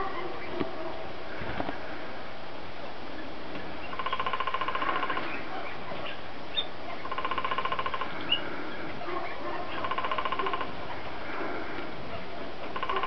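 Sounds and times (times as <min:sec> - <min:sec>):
animal rattling trill: 0:12.7 - 0:13.0.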